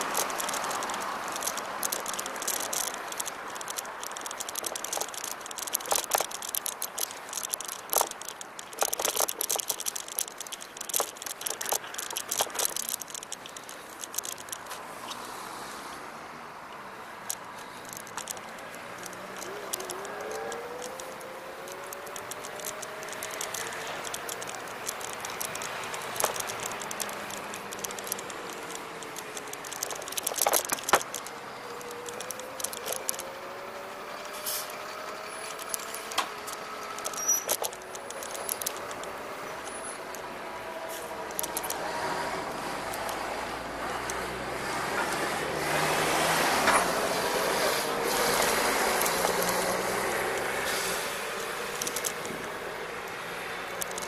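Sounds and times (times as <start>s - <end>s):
scooter rattles and clicks: 0.0s - 15.2s, 17.1s - 54.0s
passing traffic: 0.0s - 54.0s
wind: 0.0s - 54.0s
tyre hiss: 34.4s - 34.8s, 47.4s - 51.4s.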